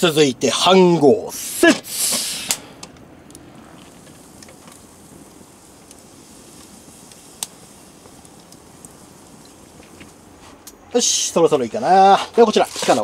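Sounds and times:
wood fire hissing and crackling: 0.0 - 13.0
fire pop: 1.8 - 10.8.

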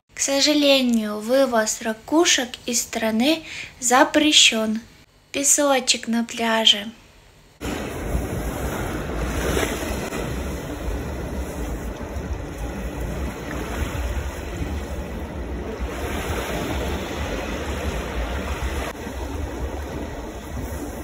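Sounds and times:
surf washing onto beach: 7.6 - 21.0
wind rumbling on microphone: 7.6 - 21.0.

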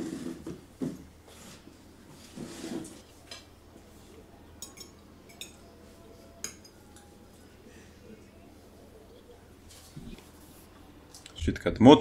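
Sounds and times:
cutlery clinking on plates: 4.6 - 5.7, 6.4 - 7.1.

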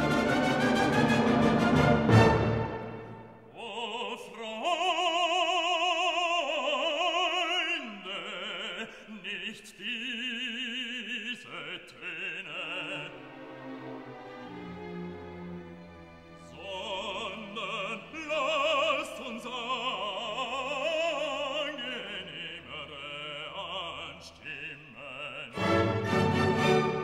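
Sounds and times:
orchestral music: 0.0 - 3.5, 12.6 - 19.5, 25.5 - 27.0
operatic voice singing: 3.4 - 13.6, 16.4 - 27.0.

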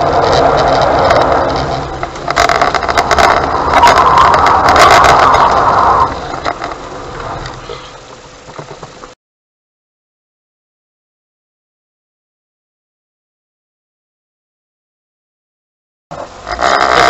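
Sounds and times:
car engine: 0.0 - 9.2, 16.1 - 17.0
road noise inside car: 0.0 - 9.2, 16.1 - 17.0.

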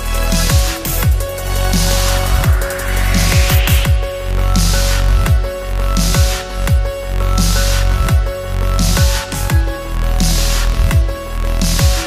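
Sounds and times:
heavy sustained bass: 0.0 - 12.0
punchy kick drums: 0.3 - 9.8, 10.9 - 12.0
high hissing noise swells: 0.8 - 5.0.

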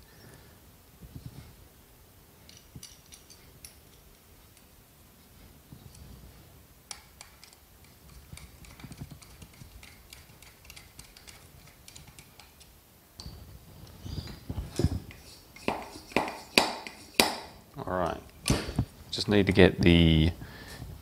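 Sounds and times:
metal parts knocking: 2.5 - 4.0
screws clicking against metal: 2.5 - 4.7, 6.9 - 12.7, 14.8 - 17.3.

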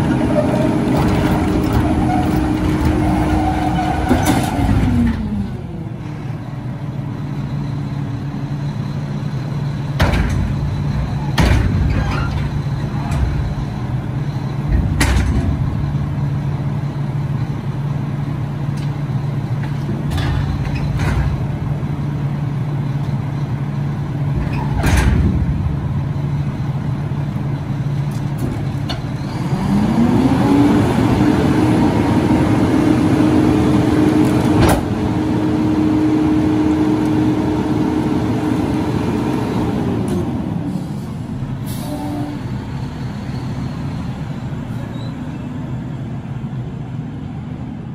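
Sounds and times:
diesel engine idling: 4.7 - 20.7, 21.3 - 30.0.

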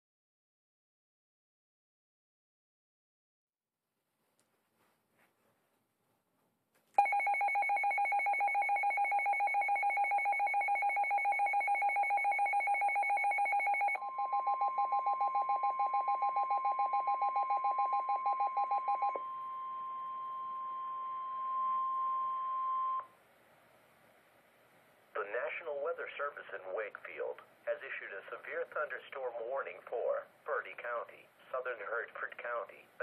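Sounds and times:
rapid two-pitch electronic beeping: 7.0 - 19.5
steady warning tone: 7.0 - 23.1.

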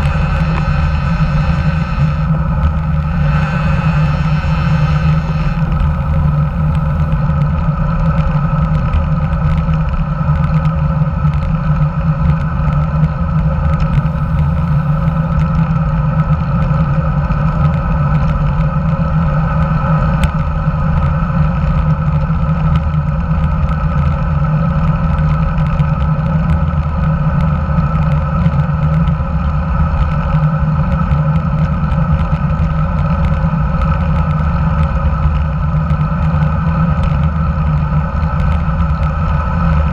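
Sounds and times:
wind rush: 0.0 - 20.1
road rumble: 0.0 - 39.9.

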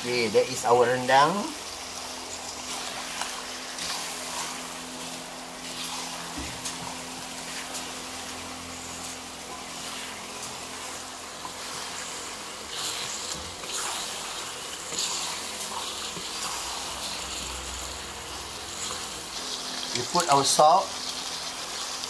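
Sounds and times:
steady frying hiss: 0.0 - 22.0
spatula stirring and scraping wok: 1.6 - 20.0.

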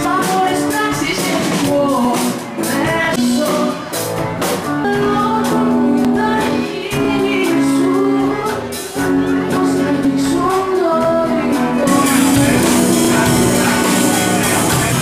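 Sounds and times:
woman singing into a microphone: 0.0 - 4.0, 4.6 - 14.2
electric guitar: 0.0 - 15.0
steady beat: 11.6 - 15.0.

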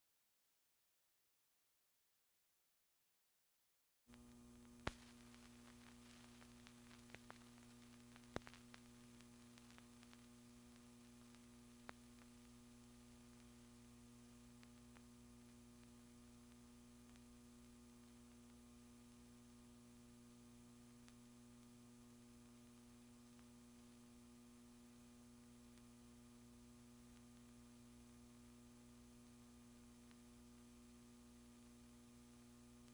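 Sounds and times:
electrical mains hum: 4.1 - 32.9.

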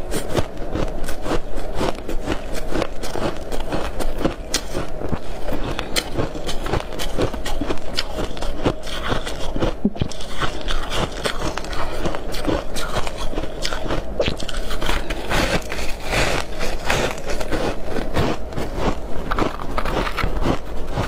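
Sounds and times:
chewing crunchy frost: 0.0 - 21.0.

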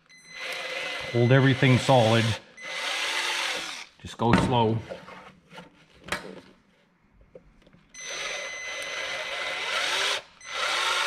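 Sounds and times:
drill boring through plastic: 0.3 - 4.0, 8.0 - 11.0.

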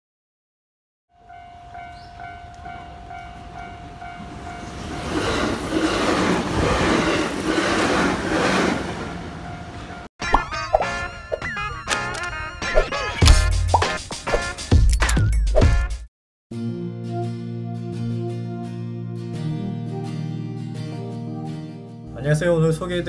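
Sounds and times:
level crossing warning bell: 1.1 - 5.6, 8.9 - 10.1
train wheels on rails: 1.9 - 10.1.

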